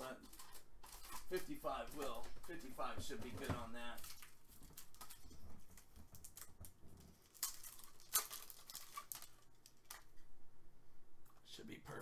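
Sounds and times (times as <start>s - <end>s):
light handling noises: 0.2s - 7.2s.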